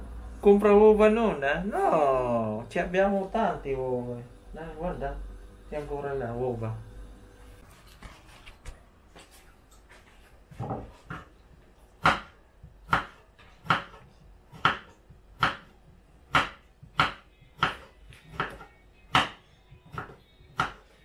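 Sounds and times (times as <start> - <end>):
knife chopping on cutting board: 12.0 - 20.9.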